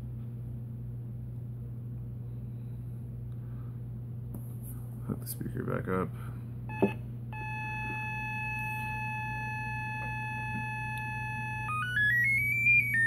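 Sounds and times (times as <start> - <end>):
triangle-wave test tone: 6.7 - 13.0.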